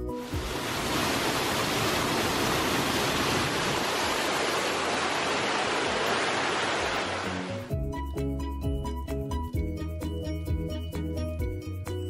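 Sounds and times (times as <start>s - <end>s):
music: 0.0s - 1.2s, 7.0s - 12.0s
waterfall roaring: 0.2s - 7.7s.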